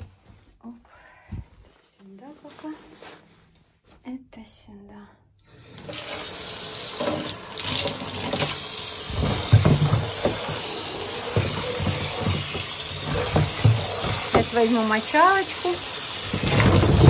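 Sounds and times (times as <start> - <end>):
tap water splashing in container: 7.0 - 14.8
container knocking: 9.1 - 14.6, 16.2 - 17.0.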